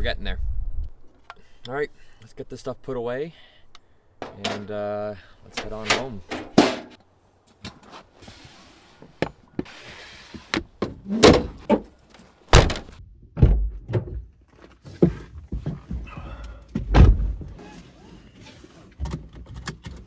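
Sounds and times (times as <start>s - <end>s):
tailgate slamming shut: 12.5s - 12.9s
car door thud: 12.5s - 13.6s.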